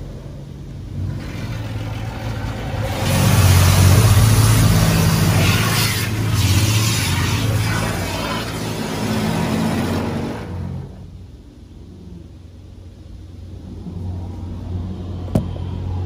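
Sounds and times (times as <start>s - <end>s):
steady low hum: 0.0s - 16.0s
water jets spraying on car: 0.9s - 11.1s.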